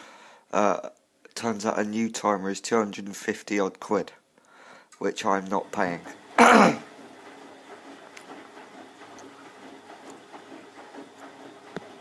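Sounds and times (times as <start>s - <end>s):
washing machine humming: 5.0s - 12.0s
person clearing throat: 6.4s - 6.9s.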